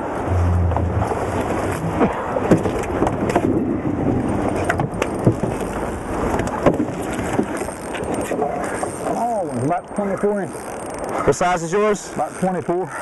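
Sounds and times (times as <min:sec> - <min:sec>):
wind and water rushing: 0:00.0 - 0:07.5.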